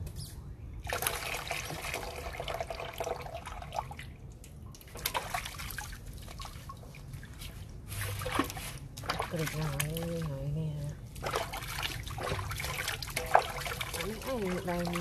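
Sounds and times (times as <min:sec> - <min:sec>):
low steady hum: 0:00.0 - 0:15.0
water running and splashing: 0:11.1 - 0:15.0.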